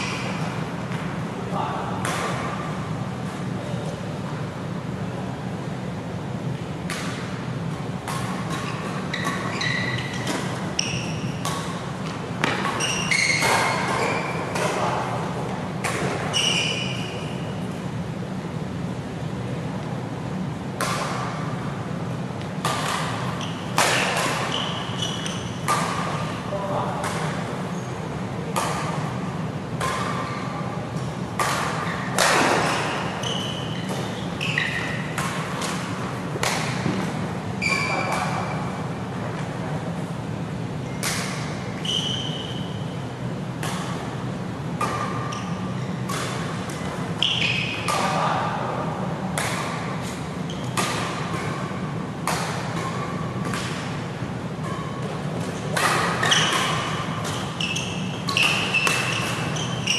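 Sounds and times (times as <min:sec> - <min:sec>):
steady low hum: 0:00.0 - 0:59.9
rackets striking shuttlecock: 0:02.0 - 0:02.7, 0:06.8 - 0:07.4, 0:08.0 - 0:15.0, 0:20.8 - 0:21.4, 0:22.4 - 0:27.5, 0:28.5 - 0:37.2, 0:41.0 - 0:42.8, 0:43.6 - 0:59.9
shoes squeaking on court: 0:08.2 - 0:14.9, 0:16.0 - 0:17.7, 0:22.8 - 0:26.6, 0:27.7 - 0:28.1, 0:31.7 - 0:35.9, 0:36.8 - 0:38.8, 0:40.8 - 0:43.0, 0:45.1 - 0:48.1, 0:50.0 - 0:51.6, 0:54.6 - 0:59.9.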